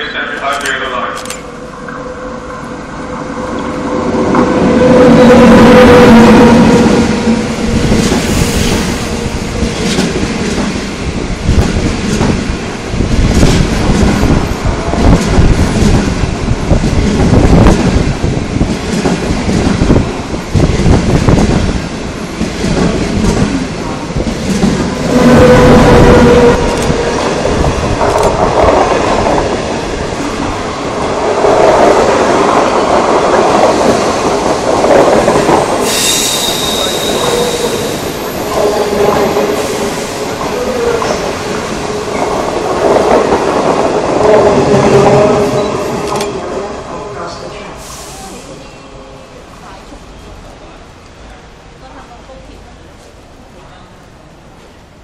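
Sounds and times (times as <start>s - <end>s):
train rumbling past: 0.0s - 55.0s
wheel squeal: 35.9s - 37.9s.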